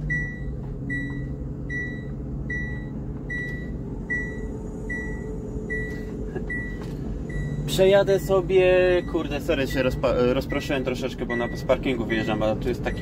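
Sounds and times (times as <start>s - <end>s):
lorry engine running: 0.0s - 13.0s
electronic warning beeps: 0.1s - 13.0s.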